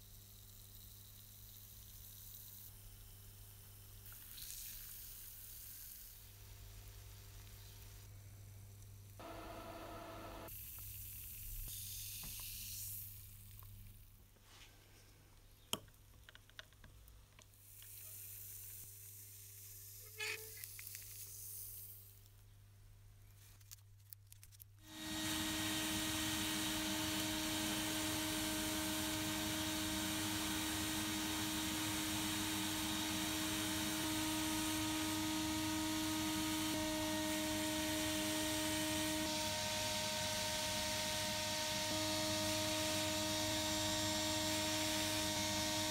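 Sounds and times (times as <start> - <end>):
faint hiss: 9.1 - 15.7
motor hum: 9.2 - 10.5, 24.9 - 45.9.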